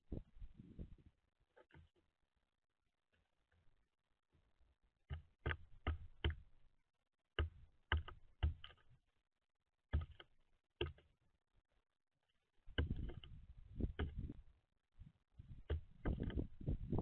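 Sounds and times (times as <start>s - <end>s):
bird pecking at peanuts: 5.0s - 6.7s, 7.3s - 9.0s, 9.9s - 11.2s.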